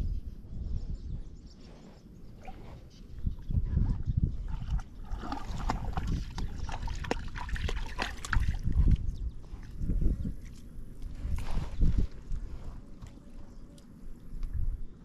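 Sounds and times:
water sounds: 2.3 - 9.8.

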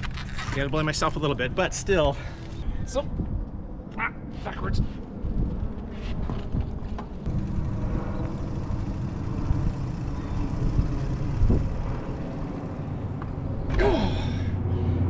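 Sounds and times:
low rumbling: 4.9 - 15.0.

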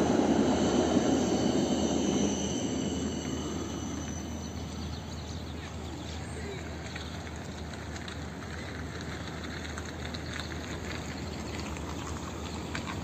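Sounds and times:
low traffic rumble: 0.0 - 13.0.

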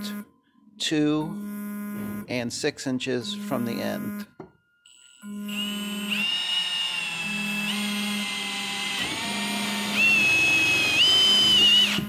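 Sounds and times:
cordless drill motor whining: 4.9 - 12.0.

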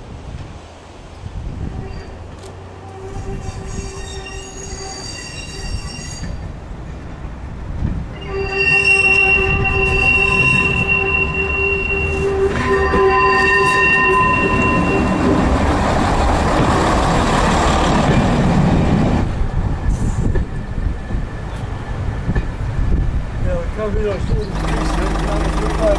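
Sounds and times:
railbus running noise: 0.0 - 25.9
high-pitched wheel squeal: 1.8 - 6.4, 8.1 - 15.4.

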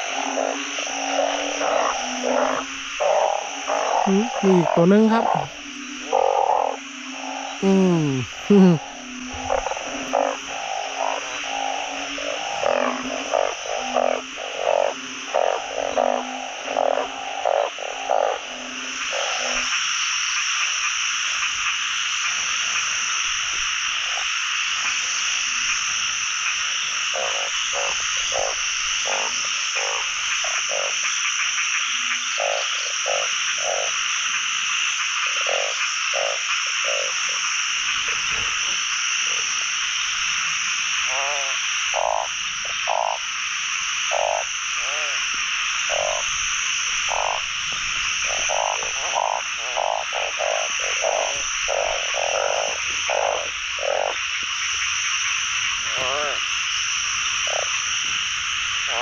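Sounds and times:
frog chorus of higher calls: 0.0 - 59.0
frogs croaking deeply: 0.0 - 59.0.

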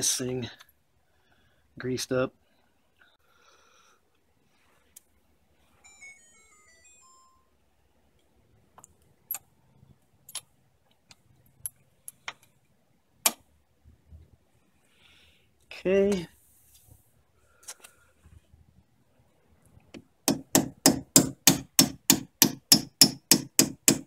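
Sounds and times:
sharp metallic taps: 20.3 - 24.0.

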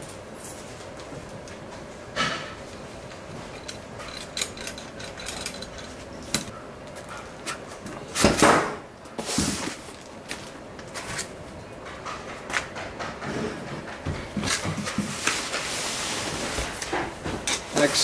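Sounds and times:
scrape and rustle: 15.0 - 16.8.

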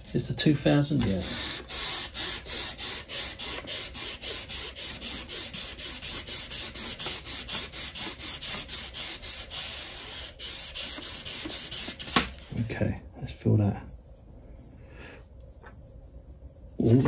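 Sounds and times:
sandpaper rubbing on metal: 1.1 - 12.2.

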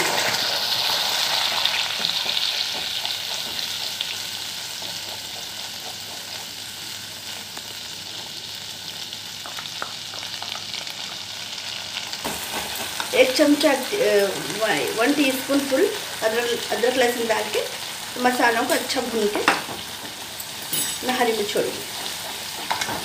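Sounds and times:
paste sizzling in hot oil: 0.0 - 23.0.

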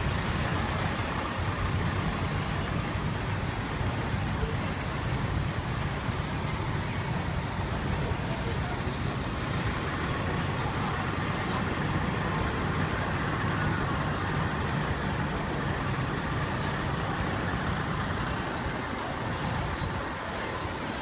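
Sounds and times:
fire truck engines idling: 0.0 - 21.0
street traffic noise: 0.0 - 21.0.

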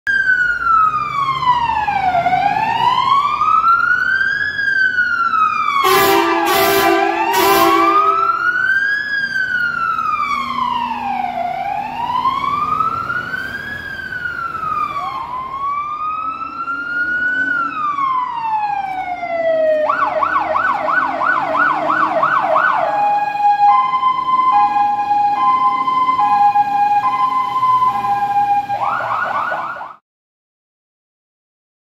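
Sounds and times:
fire engine sirens wailing: 0.1 - 30.0
short horn blasts: 5.8 - 8.4.

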